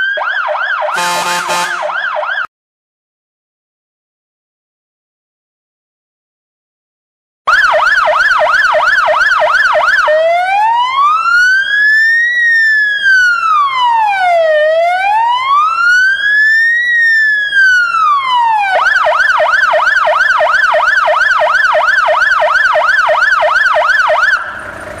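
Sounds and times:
siren yelp and wail: 0.0 - 2.5, 7.5 - 24.7.

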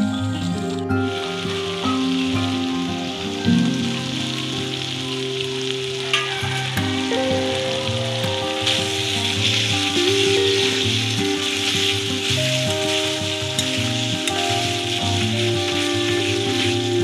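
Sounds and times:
gravy sizzling in a pan: 0.0 - 17.0
soft background music: 0.0 - 17.0
spoon stirring: 9.1 - 17.0.

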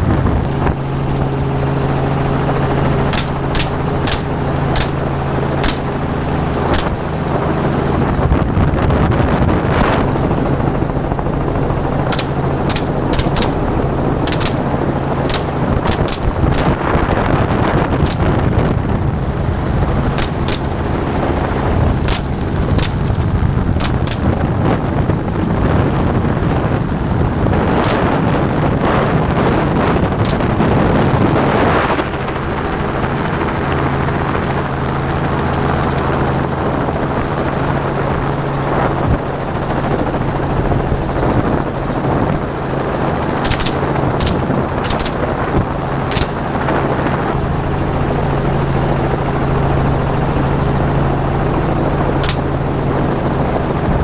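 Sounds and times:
helicopter rotor and engine: 0.0 - 54.0
rifle shots: 3.1 - 6.0, 6.7 - 7.1, 12.1 - 16.9, 20.1 - 20.9, 22.0 - 23.0, 23.8 - 24.3, 27.8 - 28.3, 30.2 - 30.7, 43.4 - 45.2, 46.1 - 46.4, 52.2 - 52.5.

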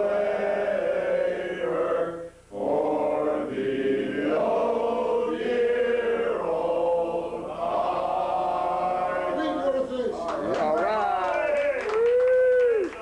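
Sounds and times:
men singing long notes: 0.0 - 9.6.

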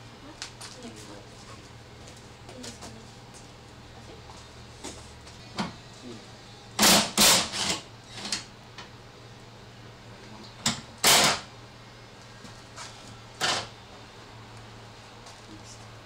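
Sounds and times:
steady low hum: 0.0 - 16.0
loud noisy tool bursts: 6.8 - 8.3, 11.0 - 11.5.

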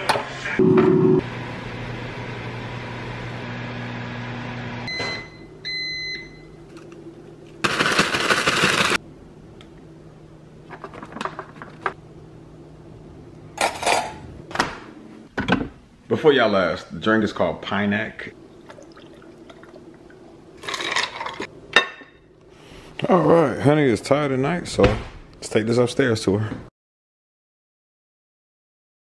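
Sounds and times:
air fryer fan hum: 0.1 - 11.3
air fryer beeps: 0.6 - 1.2, 4.9 - 6.6.

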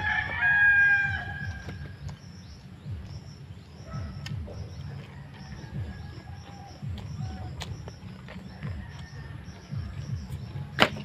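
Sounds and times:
rooster crowing: 0.0 - 1.9, 4.8 - 7.6, 8.5 - 10.0
steady low rumble: 0.0 - 11.0.

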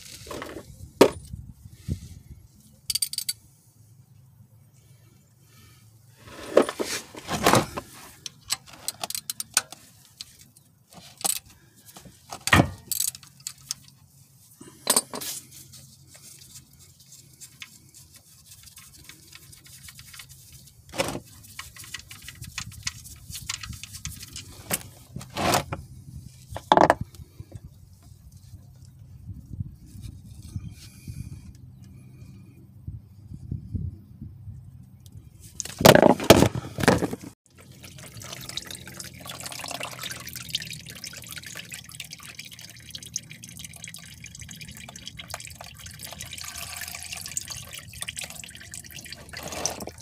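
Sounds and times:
metallic clicks and clinks: 2.9 - 3.4, 8.3 - 9.8.

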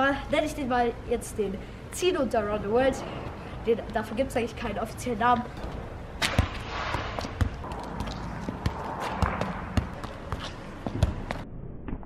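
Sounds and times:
football thudding on foot and paving: 5.6 - 11.4.

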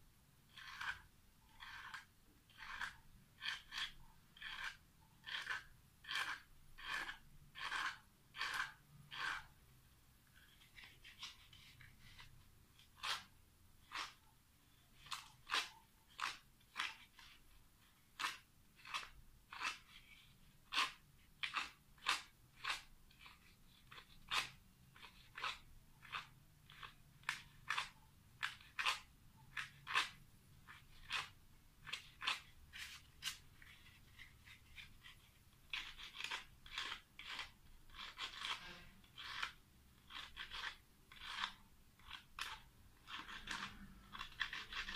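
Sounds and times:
sandpaper scratching on metal: 31.9 - 44.9.

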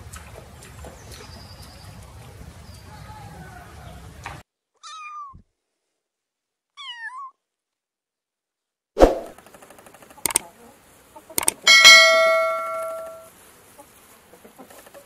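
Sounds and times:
kitten meowing: 4.8 - 5.4, 6.8 - 7.4
background hiss: 9.3 - 15.0.

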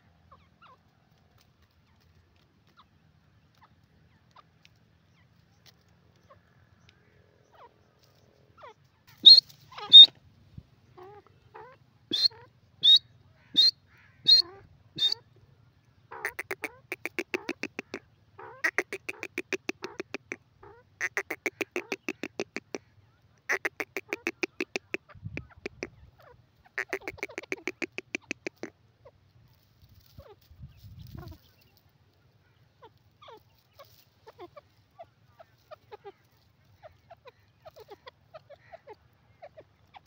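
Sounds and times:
bird calling high notes: 9.2 - 10.1.

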